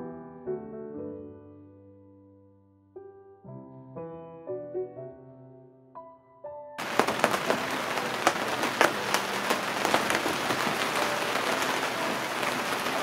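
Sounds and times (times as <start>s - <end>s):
rain hissing on enclosure: 6.8s - 13.0s
single raindrop hits: 6.8s - 13.0s.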